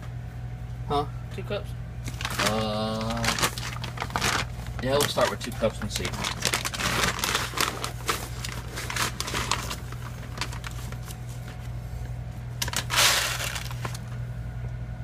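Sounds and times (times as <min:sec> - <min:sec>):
plastic bag crinkling: 0:02.0 - 0:11.6, 0:12.6 - 0:14.2.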